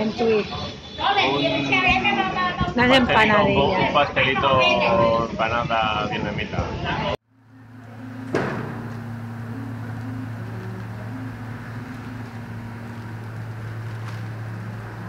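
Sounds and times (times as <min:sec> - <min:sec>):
steady low hum: 0:07.3 - 0:15.0
faint background hiss: 0:07.4 - 0:15.0.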